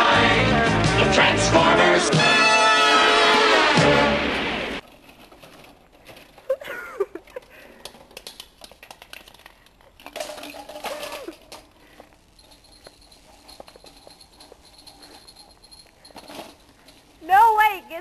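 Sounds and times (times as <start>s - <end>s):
handling clicks and rattles: 4.8s - 17.6s.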